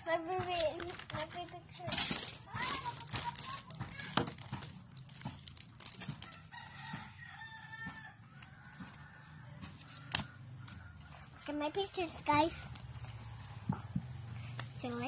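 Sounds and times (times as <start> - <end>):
rooster crowing: 6.2 - 11.3.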